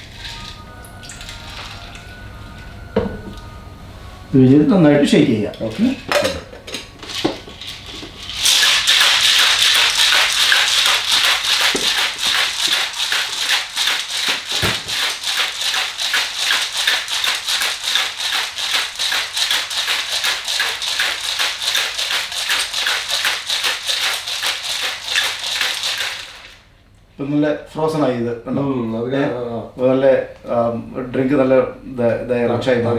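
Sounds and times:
ice rattling in cocktail shaker: 0.0s - 2.1s, 7.1s - 26.6s.

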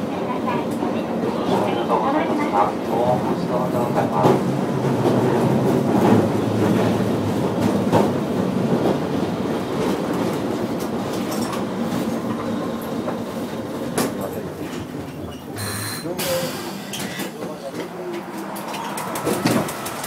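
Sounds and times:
wheels clicking over rail joints: 17.0s - 20.0s.

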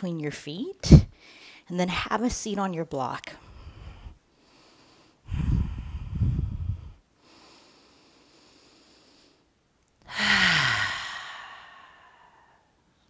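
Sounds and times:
woman breathing: 1.0s - 1.7s, 3.4s - 13.0s.

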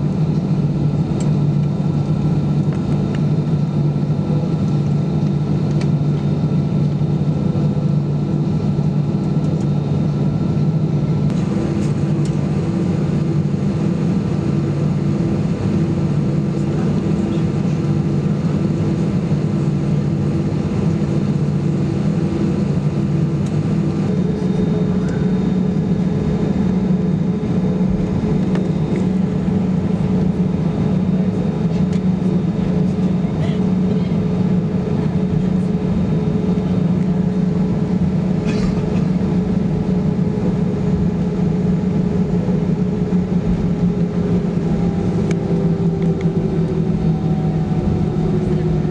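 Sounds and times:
aircraft engine hum: 0.0s - 48.9s
faint whine tones: 11.2s - 36.7s.

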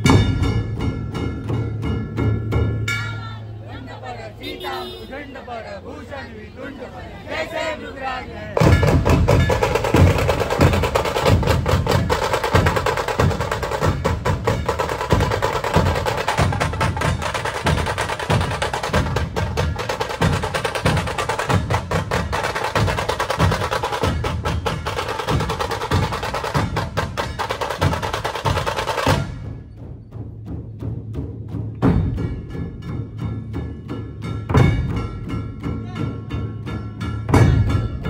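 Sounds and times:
kettle drums rolling strikes: 0.0s - 3.3s, 8.6s - 38.0s
dhol drums beating low rhythm: 0.0s - 3.5s, 8.6s - 38.0s.

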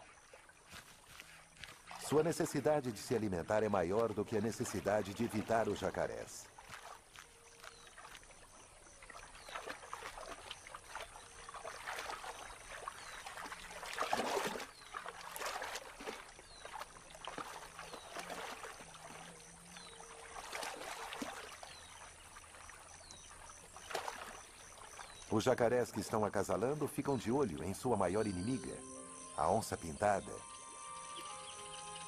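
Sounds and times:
water splashing and sloshing: 0.0s - 28.8s.

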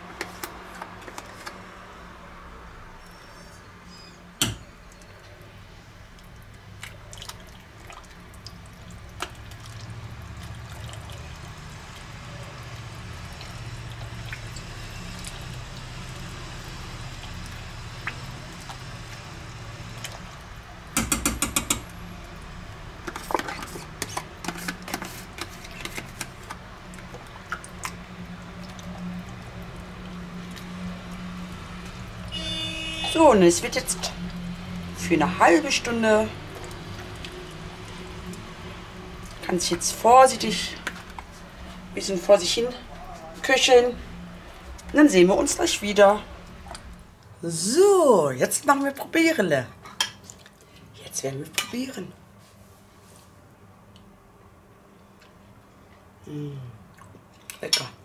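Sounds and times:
spoon knocking pot: 21.0s - 21.9s.

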